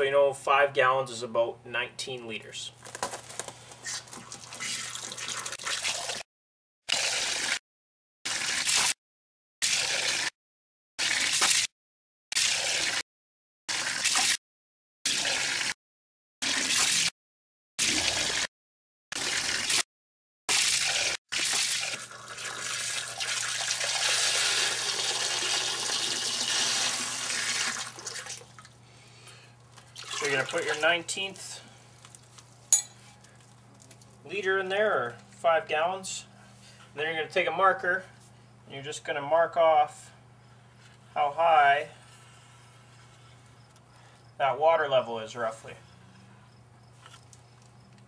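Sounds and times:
water splashing into cup: 4.1 - 6.2, 20.5 - 28.8, 29.8 - 30.8.

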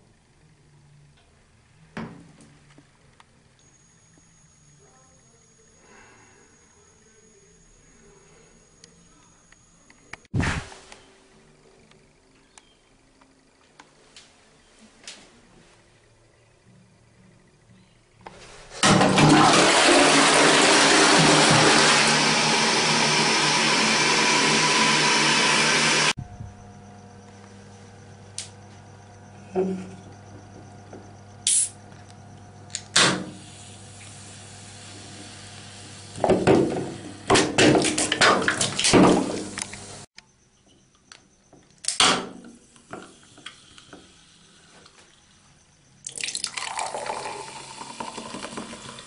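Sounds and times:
low steady hum: 26.2 - 37.2.

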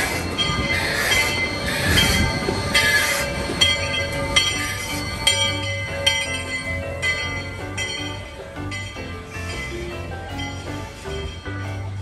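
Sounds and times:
music: 0.0 - 12.0
squealing train wheels: 0.0 - 12.0
steam train rolling: 0.0 - 12.0.

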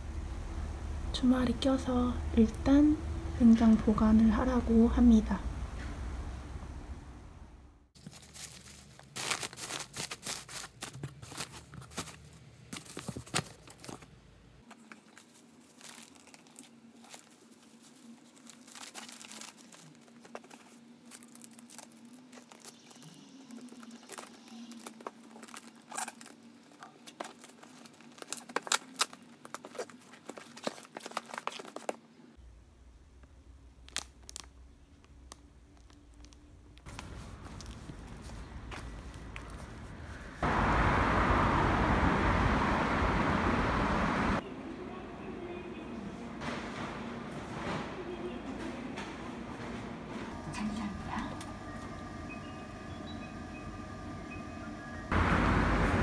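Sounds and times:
plastic packaging crinkling: 8.0 - 14.1, 14.7 - 32.0, 33.8 - 39.7.

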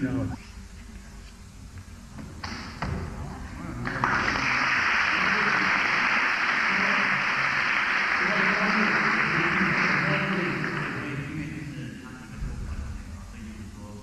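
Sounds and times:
audience applauding: 3.8 - 11.5.

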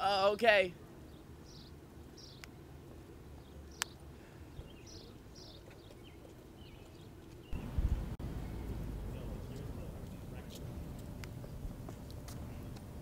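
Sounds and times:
bird chirps: 1.1 - 2.5, 3.4 - 9.3
loud low rumble: 7.6 - 10.0.

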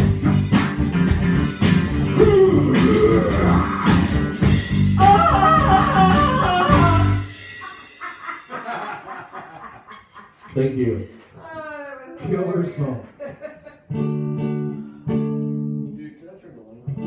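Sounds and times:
electric guitar: 0.0 - 8.0, 13.8 - 16.0
drum kit: 0.0 - 10.6.

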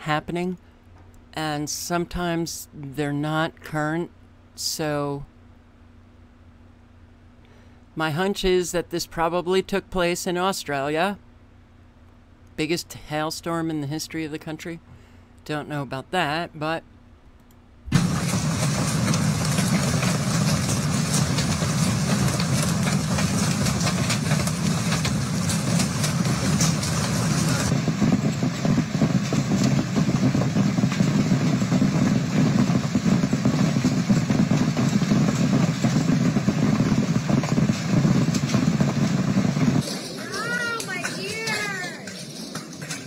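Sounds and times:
low blustery rumble: 15.5 - 43.0
hailstones clattering: 17.9 - 43.0.

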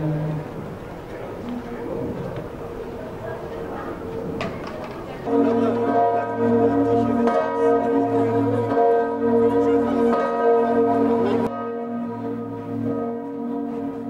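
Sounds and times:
church bells pealing: 5.0 - 14.0
low bell tolling: 5.2 - 14.0.

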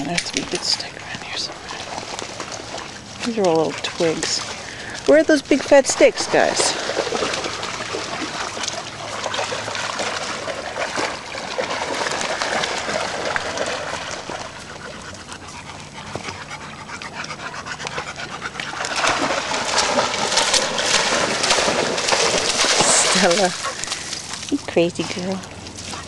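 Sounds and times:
dog panting: 13.5 - 19.3, 22.9 - 24.3.

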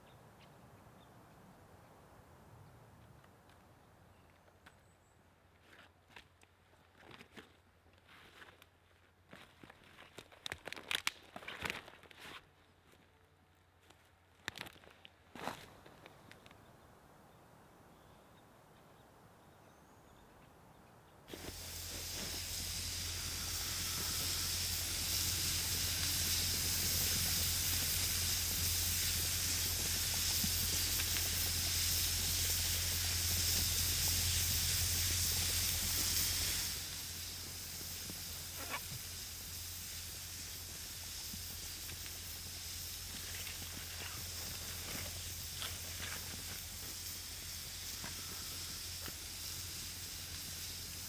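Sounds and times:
pressure cooker hissing: 21.3 - 51.0.

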